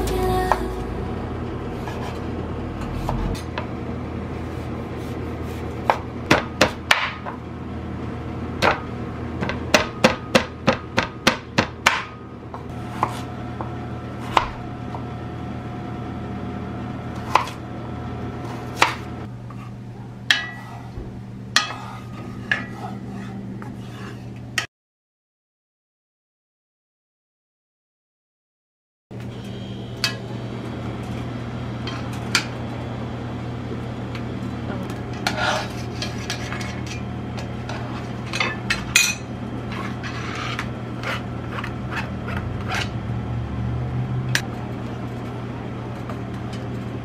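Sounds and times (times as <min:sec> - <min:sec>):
knife chopping on wooden board: 0:12.9 - 0:13.3.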